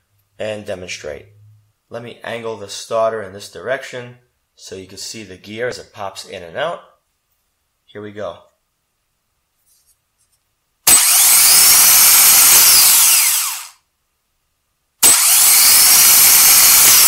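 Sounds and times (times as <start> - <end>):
starter motor whirring: 10.9 - 13.8, 15.0 - 17.0.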